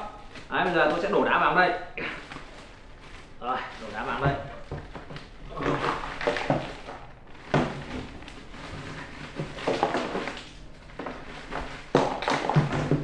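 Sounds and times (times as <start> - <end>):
plastic bag crinkling: 0.0 - 13.0
ice cubes clattering into plastic container: 5.5 - 13.0.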